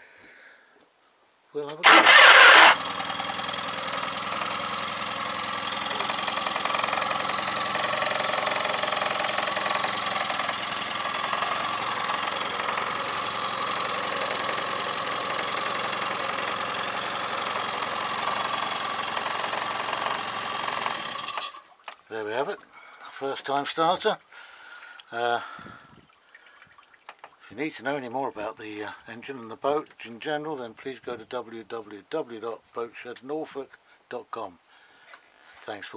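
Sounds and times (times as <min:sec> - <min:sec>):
outboard motor idling: 0:01.8 - 0:21.8.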